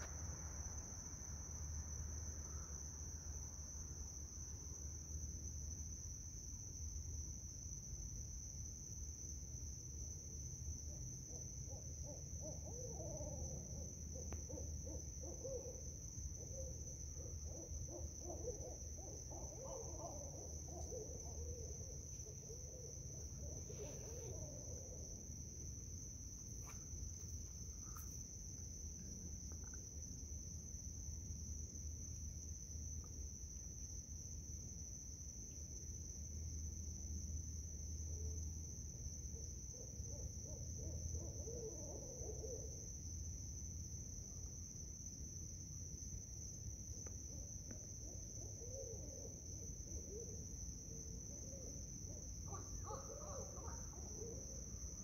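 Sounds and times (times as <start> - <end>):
owls hooting: 52.5 - 54.4.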